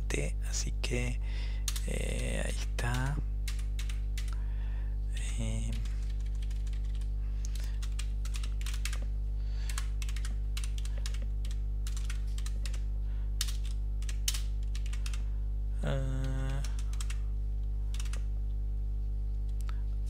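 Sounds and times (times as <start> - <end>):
steady low hum: 0.0 - 20.0
computer keyboard typing: 1.7 - 2.3, 2.9 - 4.4, 5.2 - 9.1, 9.7 - 15.2, 16.1 - 17.2, 17.9 - 18.3.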